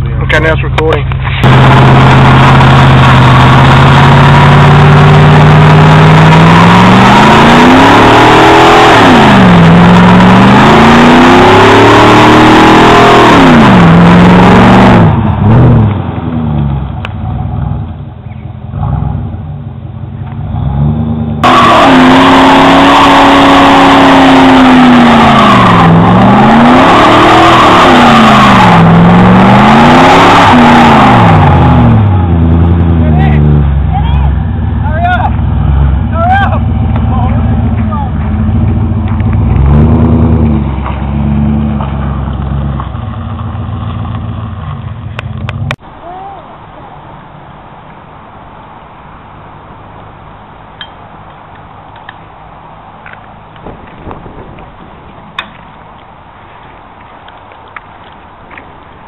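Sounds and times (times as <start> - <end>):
car engine revving: 0.0 - 45.8.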